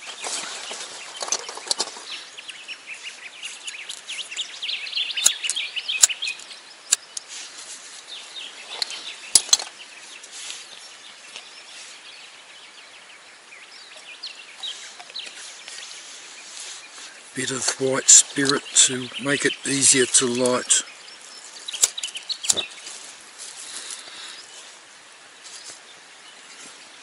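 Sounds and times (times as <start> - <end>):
birds chirping: 0.0 - 27.0
camp cooking gear clicking: 3.6 - 4.1, 5.2 - 7.3, 8.7 - 9.8, 21.7 - 22.7.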